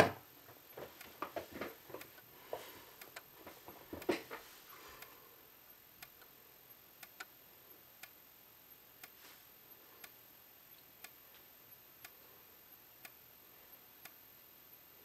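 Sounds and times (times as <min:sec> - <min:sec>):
faint ticks: 0:00.5 - 0:04.4, 0:05.0 - 0:15.0
strobe clicking: 0:03.0 - 0:03.3, 0:05.0 - 0:09.2, 0:10.0 - 0:14.9.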